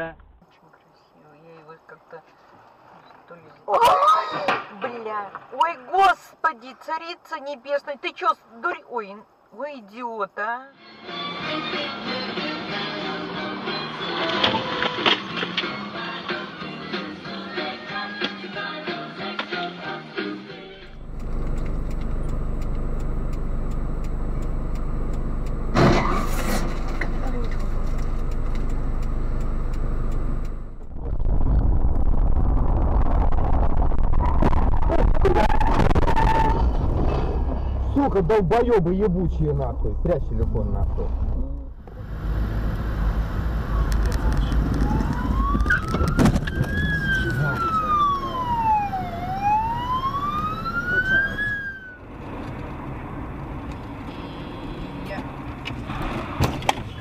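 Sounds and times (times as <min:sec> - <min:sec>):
car road and engine rumble: 0:20.5 - 0:57.0
ambulance siren wailing: 0:35.2 - 0:36.8, 0:41.9 - 0:52.1.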